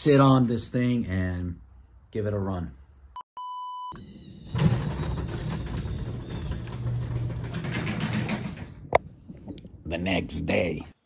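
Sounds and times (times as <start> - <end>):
garage door opener running: 4.0 - 9.0.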